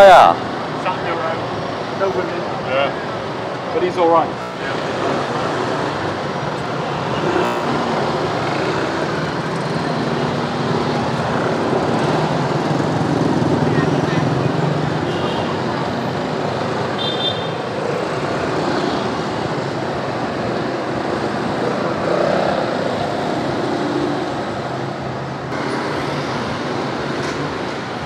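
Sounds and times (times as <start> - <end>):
motor scooter engines: 0.0 - 28.0
car engines running: 0.6 - 16.9.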